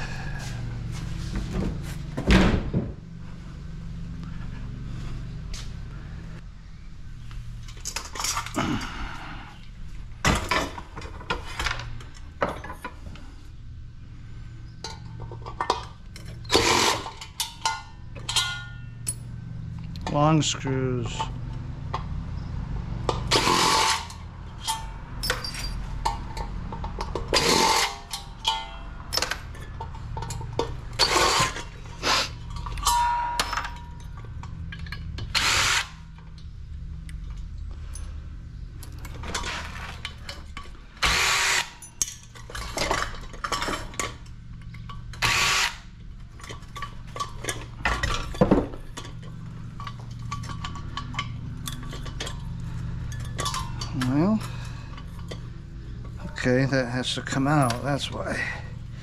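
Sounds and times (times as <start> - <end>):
cordless drill running: 35.3 - 36.0, 41.0 - 41.7, 45.2 - 45.8.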